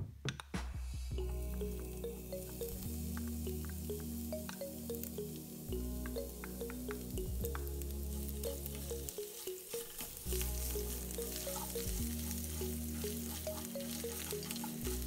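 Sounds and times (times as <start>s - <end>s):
background music: 0.0s - 15.0s
seeds sizzling in hot oil: 1.2s - 15.0s
spatula stirring in pan: 7.6s - 15.0s.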